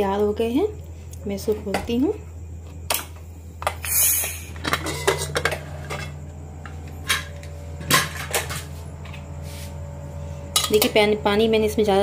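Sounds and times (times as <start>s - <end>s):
pressure cooker hiss: 3.7s - 5.2s
metal lid clanks and knocks: 4.6s - 6.2s, 7.0s - 8.6s, 10.5s - 10.9s.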